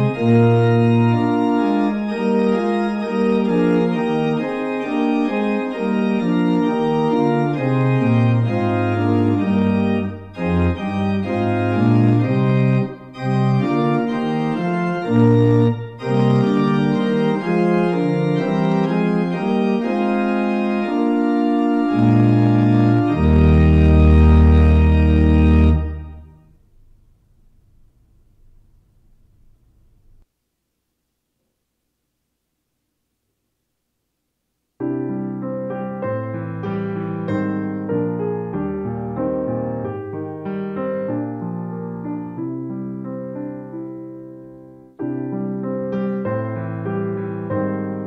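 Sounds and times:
organ playing chords: 0:00.0 - 0:26.6, 0:34.8 - 0:44.1.

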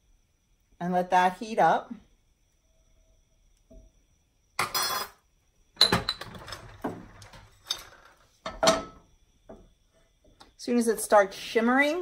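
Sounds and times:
kitchenware clanking: 0:04.6 - 0:05.2, 0:05.8 - 0:09.1.

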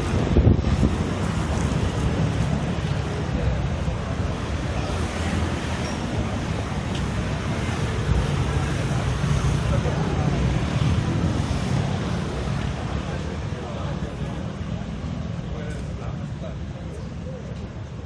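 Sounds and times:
wind buffeting microphone: 0:00.0 - 0:03.3
street noise: 0:00.0 - 0:18.0.

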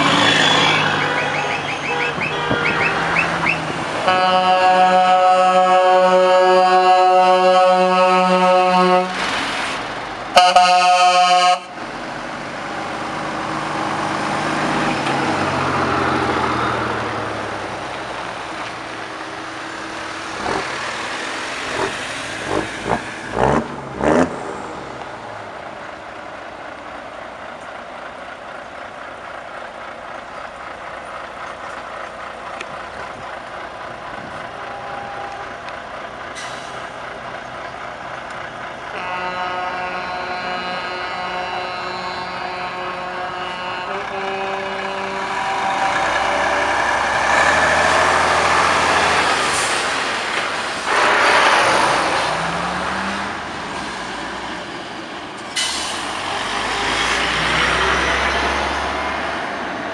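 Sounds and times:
truck diesel engine passing: 0:00.0 - 0:59.9
truck air horn blast: 0:00.1 - 0:09.3, 0:10.3 - 0:11.8, 0:34.6 - 0:35.6, 0:38.9 - 0:50.0, 0:50.9 - 0:53.1.

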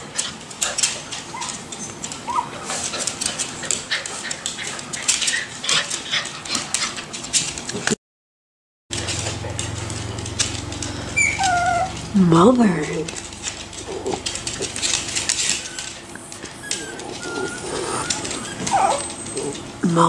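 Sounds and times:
puppies scuffling: 0:00.0 - 0:08.0, 0:08.9 - 0:19.9
puppy whimpers: 0:01.3 - 0:02.6, 0:10.8 - 0:12.2, 0:13.8 - 0:19.8
steady low hum: 0:08.9 - 0:20.0.

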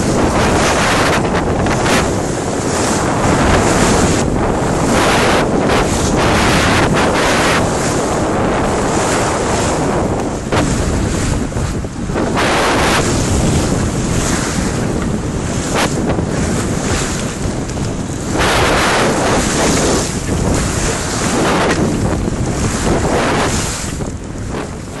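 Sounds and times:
water splashing along a hull: 0:00.0 - 0:25.0
wind buffeting the microphone: 0:00.0 - 0:25.0.

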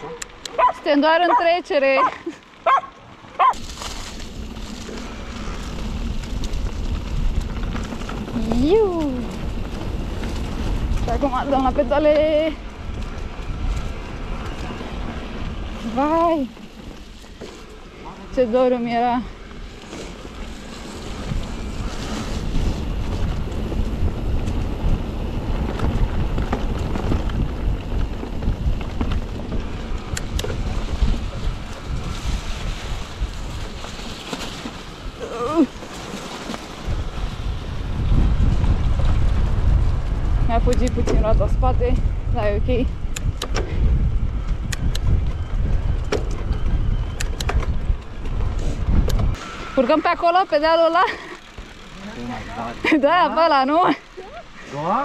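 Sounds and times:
bike tyres rolling on dirt trail: 0:00.0 - 0:55.0
wind rumbling on microphone: 0:00.0 - 0:55.0
bike clicks and knocks: 0:43.1 - 0:43.9, 0:46.0 - 0:49.3.

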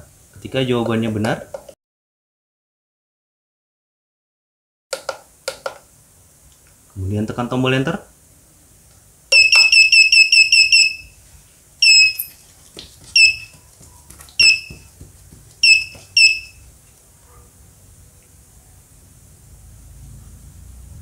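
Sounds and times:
buzzer beeping: 0:09.3 - 0:11.2, 0:11.8 - 0:12.4, 0:13.2 - 0:13.6, 0:14.4 - 0:14.9, 0:15.6 - 0:16.7.

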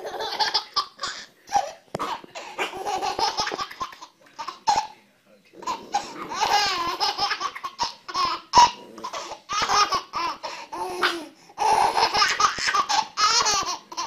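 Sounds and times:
baby giggling: 0:00.0 - 0:04.9, 0:05.6 - 0:14.0.

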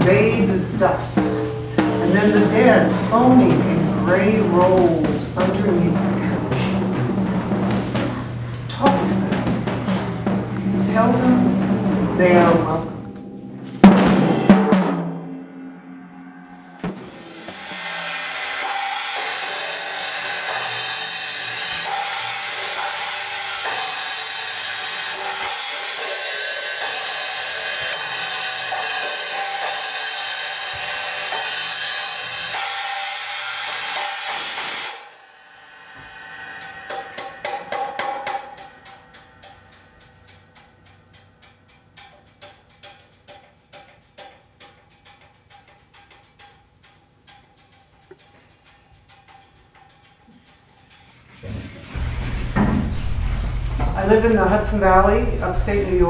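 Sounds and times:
cymbals rolling: 0:00.0 - 0:56.0
light percussion strikes: 0:00.0 - 0:56.0
loud thump: 0:52.0 - 0:54.0.

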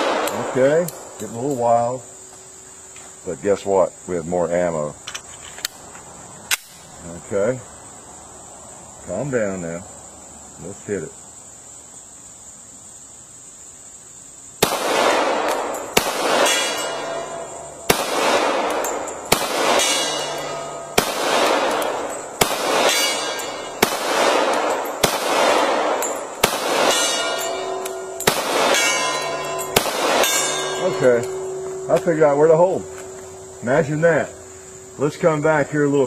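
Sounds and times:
pistol shots with echo: 0:00.0 - 0:01.3, 0:14.6 - 0:34.3
steel gong target ringing: 0:16.5 - 0:23.8, 0:26.2 - 0:35.1.

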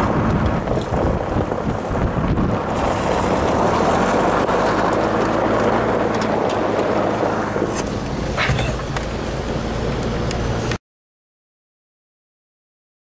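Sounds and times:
tyres rolling over gravel: 0:00.0 - 0:10.8
vehicle engine running: 0:00.0 - 0:10.8
wind on microphone: 0:00.0 - 0:10.8.

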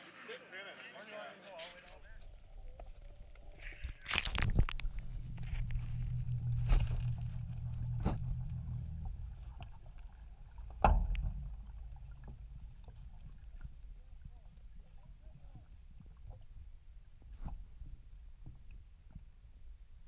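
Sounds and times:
muffled underwater rumble: 0:02.0 - 0:20.0
sharp knocks: 0:10.7 - 0:12.4.

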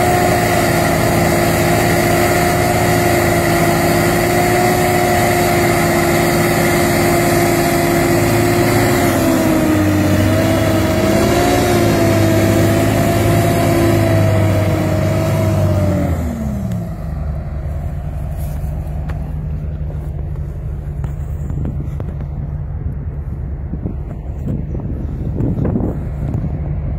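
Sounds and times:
heavy tractor diesel engines: 0:00.0 - 0:26.9.

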